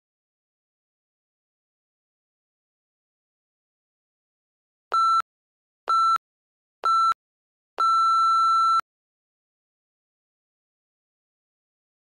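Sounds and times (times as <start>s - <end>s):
timer short beeps: 5.9s - 6.2s, 6.9s - 7.2s, 7.8s - 8.8s.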